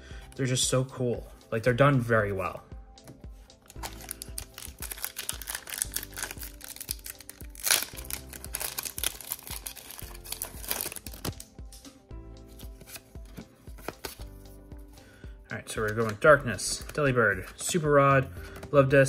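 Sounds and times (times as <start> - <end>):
background music: 0.0 - 19.0
foil wrapper tearing and crinkling: 3.7 - 11.4.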